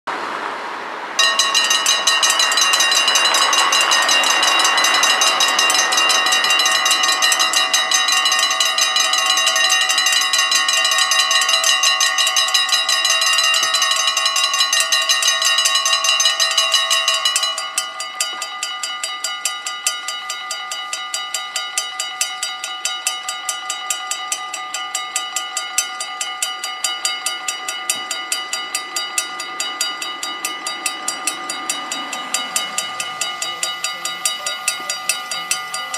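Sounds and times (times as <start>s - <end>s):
level crossing bells ringing: 1.1s - 35.9s.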